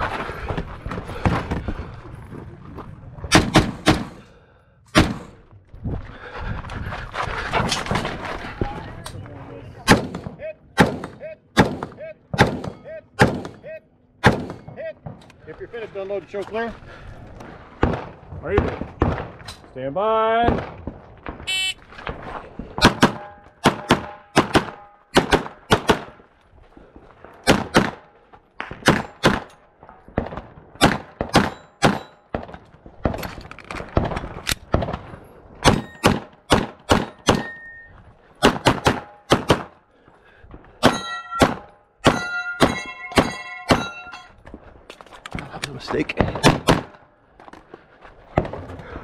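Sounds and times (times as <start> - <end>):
gunshots in quick bursts: 3.3 - 4.2, 9.8 - 13.6, 14.2 - 15.2, 22.8 - 26.2, 27.4 - 28.0, 28.7 - 29.5, 30.2 - 32.6, 35.6 - 37.5, 38.4 - 39.8, 46.2 - 47.0
steel targets ringing: 37.1 - 37.9, 40.8 - 44.4.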